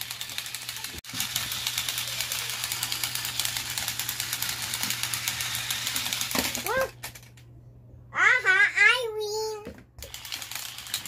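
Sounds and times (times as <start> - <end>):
toy robot gears clattering: 0.0 - 7.4, 10.0 - 11.0.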